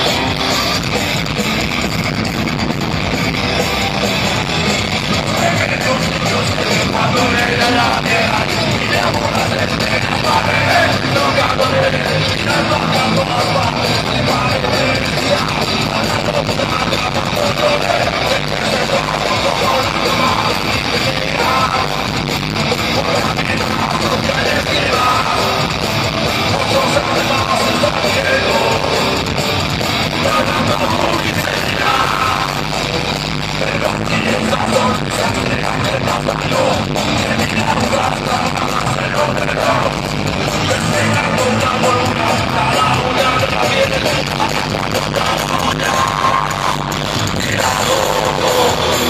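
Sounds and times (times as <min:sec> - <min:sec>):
drums: 0:00.0 - 0:49.0
electric guitars: 0:00.0 - 0:49.0.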